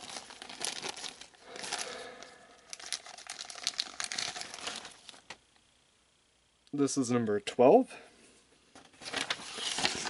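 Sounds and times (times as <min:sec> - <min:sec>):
plastic packaging crinkling: 0:00.0 - 0:05.4, 0:08.9 - 0:10.0.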